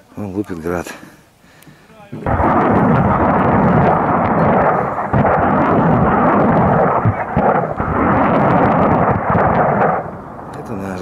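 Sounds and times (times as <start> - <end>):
rocket launches rolling rumble: 2.2 - 11.0.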